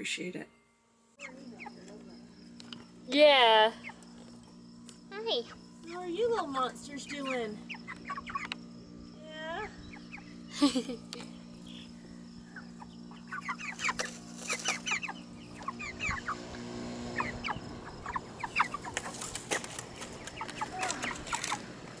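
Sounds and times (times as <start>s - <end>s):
chickens clucking: 1.2s - 2.0s, 7.0s - 8.7s, 9.8s - 10.4s, 11.4s - 22.0s.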